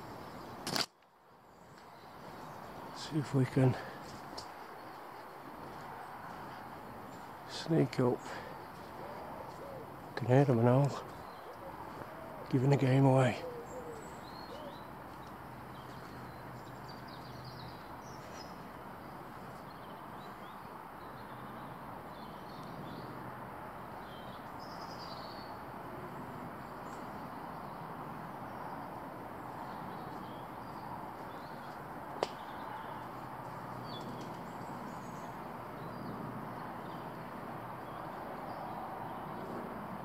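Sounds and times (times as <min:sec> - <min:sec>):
outdoor background hiss: 0:00.0 - 0:40.0
small birds chirping: 0:00.0 - 0:40.0
sharp click: 0:00.6 - 0:01.0.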